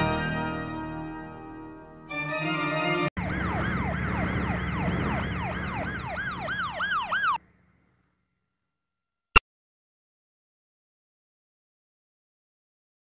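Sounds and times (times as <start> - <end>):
siren wailing up and down: 3.2 - 7.4.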